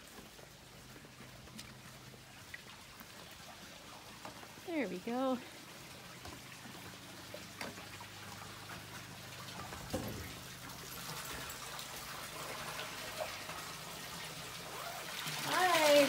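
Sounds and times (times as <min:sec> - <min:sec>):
water gushing into tub: 0:05.5 - 0:16.0.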